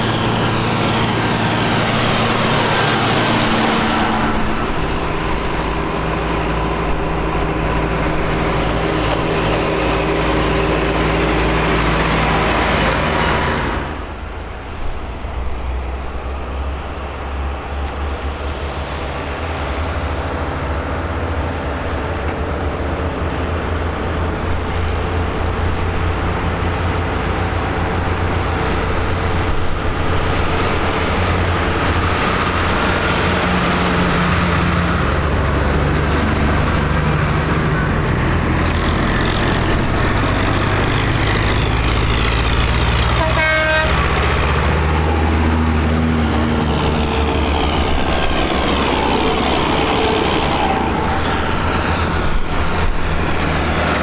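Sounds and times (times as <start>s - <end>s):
diesel tractors passing: 0.0s - 54.0s
short horn toot: 43.2s - 44.0s.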